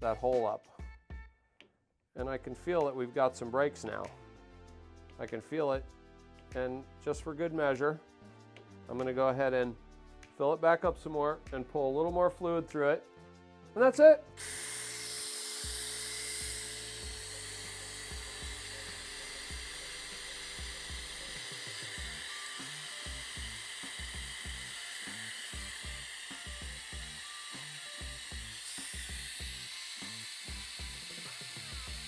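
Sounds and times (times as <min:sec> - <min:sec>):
compressed air hissing: 0:14.4 - 0:32.0.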